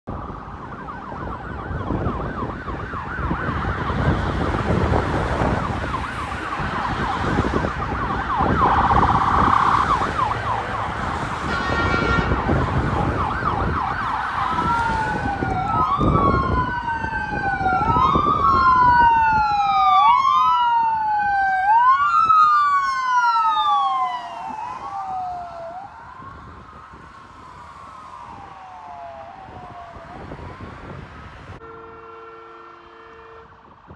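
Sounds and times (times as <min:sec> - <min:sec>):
ambulance siren: 0:00.1 - 0:33.8
traffic rumble: 0:00.1 - 0:33.9
vehicle horn blast: 0:11.4 - 0:12.4, 0:31.6 - 0:33.6.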